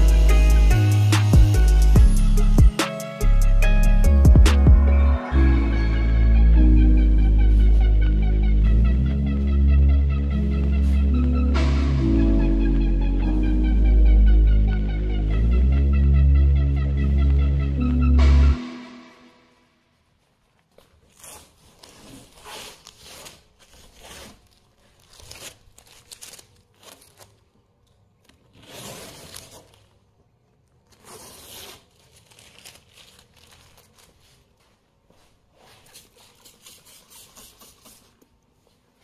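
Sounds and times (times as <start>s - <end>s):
tape crinkling in hand: 20.2s - 38.2s
tape peeling off paintwork: 20.6s - 30.0s.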